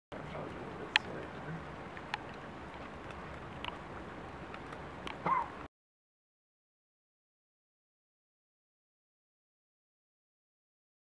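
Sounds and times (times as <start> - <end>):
small clicks: 3.0 - 3.8.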